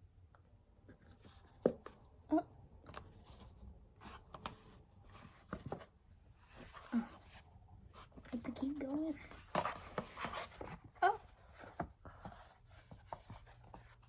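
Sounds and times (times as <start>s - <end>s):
cardboard box rustling: 3.2s - 14.0s.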